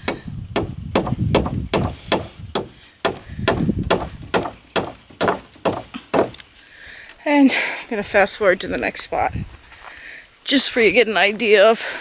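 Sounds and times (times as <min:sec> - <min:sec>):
hammer striking staples into wood: 0:00.0 - 0:06.4.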